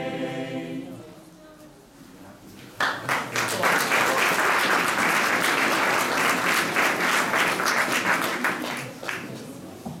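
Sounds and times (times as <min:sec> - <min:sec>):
audience applauding: 0:02.8 - 0:09.4.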